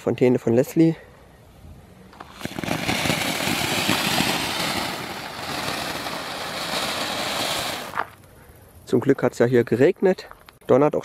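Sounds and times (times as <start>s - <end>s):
firework fountain hissing: 2.2s - 8.2s.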